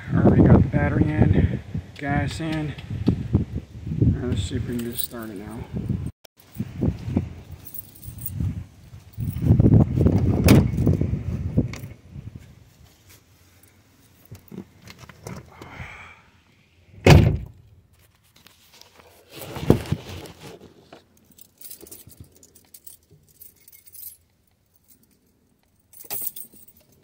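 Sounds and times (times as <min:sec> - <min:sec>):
handling noises: 0:04.4 - 0:05.7, 0:06.4 - 0:11.0, 0:11.6 - 0:15.5, 0:17.5 - 0:27.0
keys jangling: 0:04.7 - 0:05.6, 0:07.6 - 0:09.5, 0:21.1 - 0:27.0
heavy thunk: 0:17.0 - 0:17.5.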